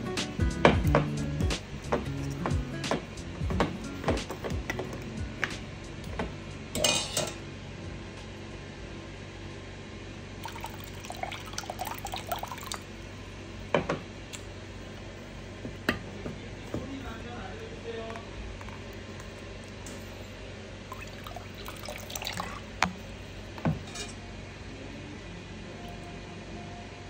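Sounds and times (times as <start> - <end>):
metal ladle clinking on pot: 6.8 - 7.4
liquid sloshing: 10.4 - 12.9, 18.0 - 20.2, 20.9 - 23.9.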